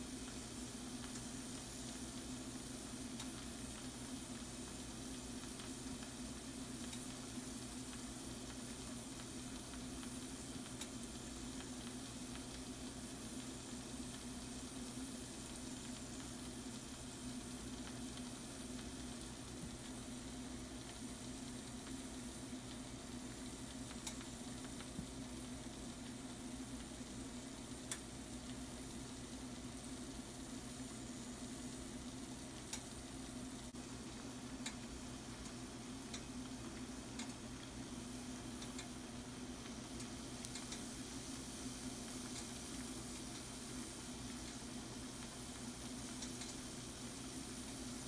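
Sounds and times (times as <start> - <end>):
food sizzling in a skillet: 0.0 - 48.0.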